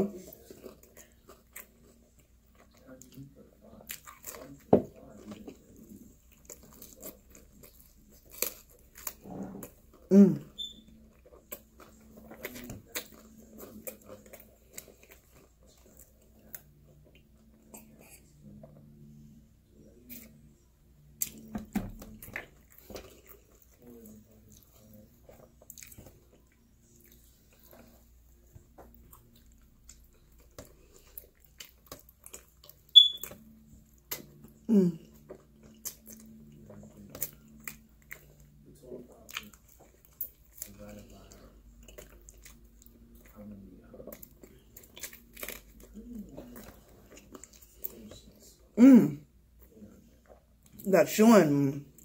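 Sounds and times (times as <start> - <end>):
person chewing with wet smacks: 0.0 - 48.8, 49.5 - 50.9
high-pitched squeak: 33.0 - 33.3.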